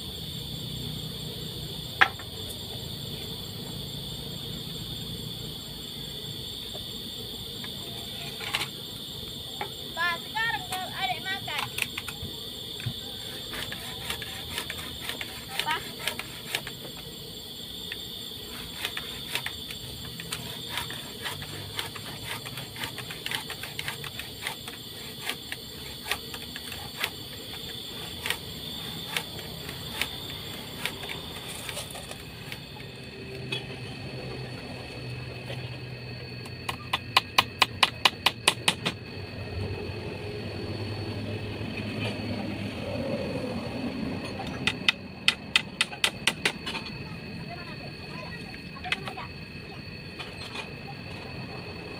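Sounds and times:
high-pitched insect drone: 0:00.0 - 0:51.9
sharp knocks: 0:36.8 - 0:39.0.

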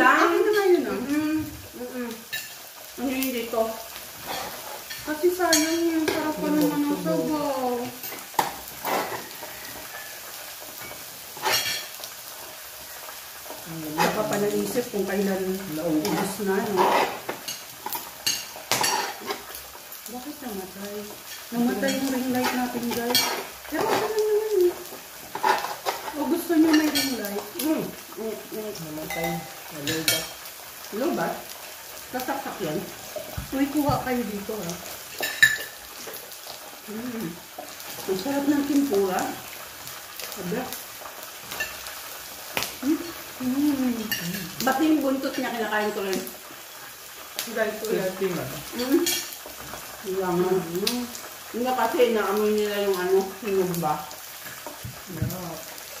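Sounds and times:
meat sizzling on grill: 0:00.0 - 0:56.0
utensils scraping on grill plate: 0:04.2 - 0:06.2, 0:08.0 - 0:10.2, 0:10.8 - 0:12.0, 0:13.9 - 0:14.5, 0:16.0 - 0:19.6, 0:21.3 - 0:24.2, 0:25.3 - 0:27.1, 0:35.1 - 0:35.8
person speaking: 0:05.3 - 0:07.9.

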